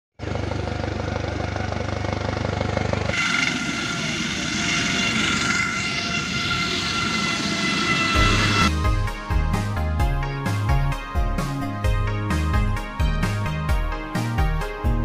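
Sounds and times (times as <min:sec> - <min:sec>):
helicopter turbine whine: 0:00.2 - 0:09.3
helicopter rotor beat: 0:00.2 - 0:10.0.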